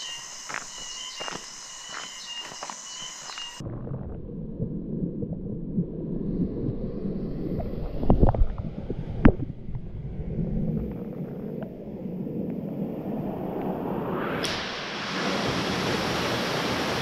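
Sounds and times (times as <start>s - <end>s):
muffled underwater water rush: 3.4s - 17.0s.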